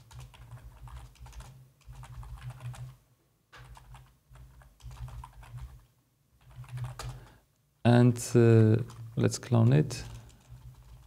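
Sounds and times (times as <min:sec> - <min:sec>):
computer keyboard typing: 0:00.0 - 0:03.0, 0:03.6 - 0:07.4, 0:08.5 - 0:09.3, 0:10.0 - 0:11.0.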